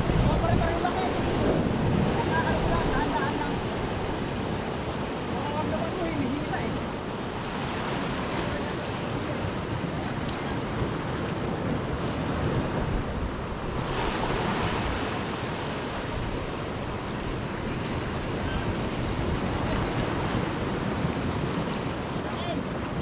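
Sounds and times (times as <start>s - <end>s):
surf breaking on rocks: 0.0s - 23.0s
wind buffeting microphone: 0.0s - 23.0s.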